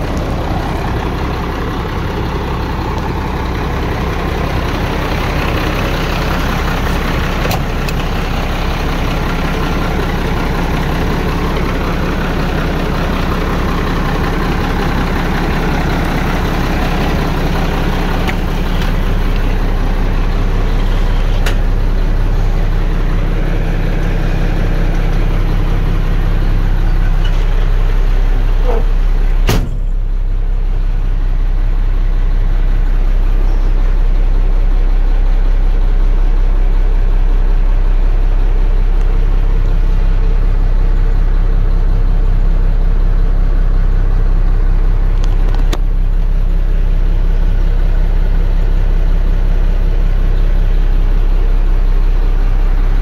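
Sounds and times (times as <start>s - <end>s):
diesel engine idling: 0.0s - 53.0s
sharp knock: 29.5s - 29.9s.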